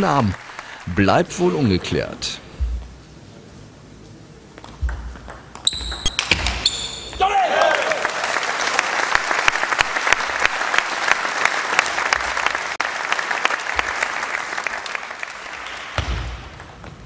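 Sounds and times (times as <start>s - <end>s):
audience applauding: 0.0s - 2.0s, 7.3s - 16.0s.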